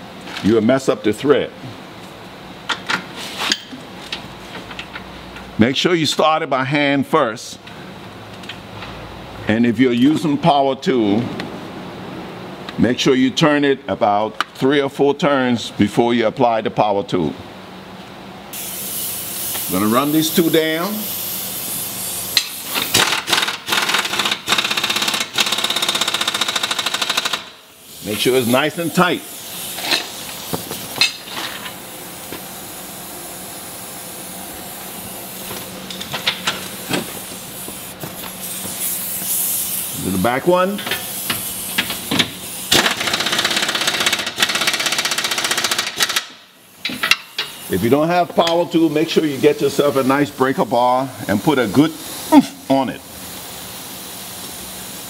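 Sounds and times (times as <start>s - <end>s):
impact wrench hammering: 22.3s - 27.6s, 40.8s - 47.7s.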